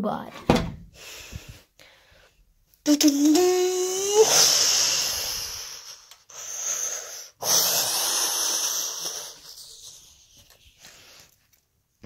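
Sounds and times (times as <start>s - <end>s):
breathy mouth whoosh: 3.9s - 10.2s.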